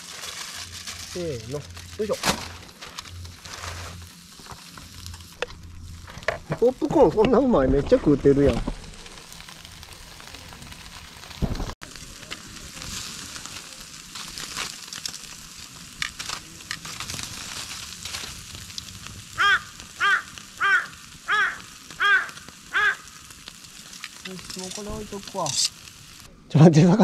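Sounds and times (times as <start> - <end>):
fish sizzling on a grill: 0.0 - 27.0
wood fire crackling: 0.0 - 27.0
crow cawing: 19.3 - 23.4.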